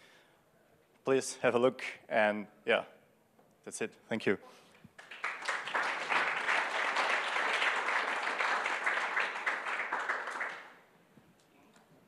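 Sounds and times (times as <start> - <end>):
audience applauding: 5.0 - 10.8.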